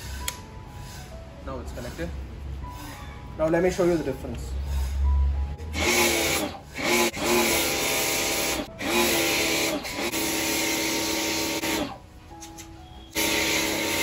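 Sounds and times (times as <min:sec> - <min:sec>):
pressure washer motor humming: 0:05.6 - 0:12.0, 0:13.1 - 0:14.0.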